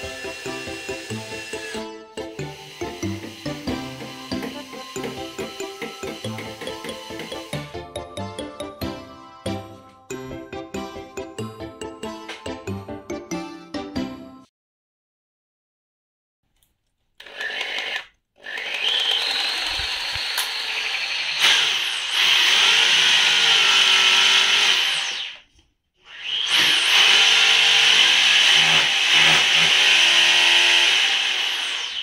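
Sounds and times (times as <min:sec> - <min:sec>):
electric drill boring into wall: 0:00.0 - 0:07.8, 0:17.2 - 0:32.0.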